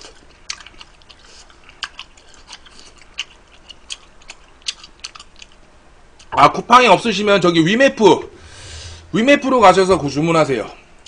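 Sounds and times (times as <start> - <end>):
person chewing with wet mouth clicks: 0.0 - 5.6.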